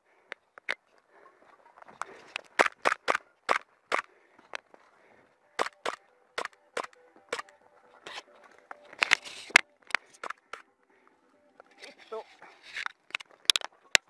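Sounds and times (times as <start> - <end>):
airsoft gun shots: 2.6 - 4.1, 5.6 - 7.5.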